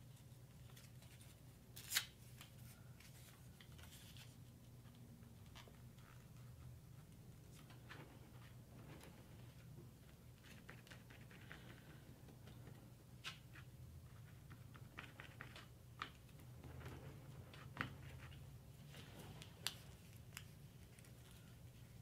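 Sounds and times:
low steady hum: 0:00.0 - 0:22.0
paper rustling: 0:13.2 - 0:22.0.

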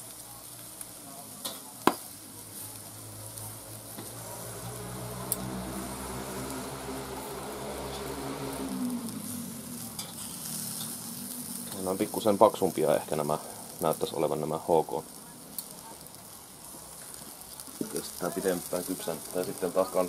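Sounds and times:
sausages sizzling on a grill: 0:00.0 - 0:20.0
metal tongs clinking on grate: 0:01.4 - 0:01.7, 0:09.9 - 0:11.0
low droning hum: 0:03.3 - 0:12.0.

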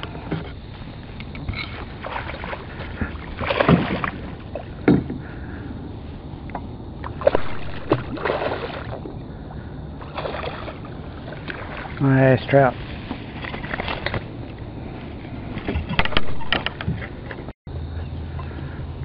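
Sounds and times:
fish splashing at surface: 0:02.0 - 0:04.3, 0:07.1 - 0:09.0.

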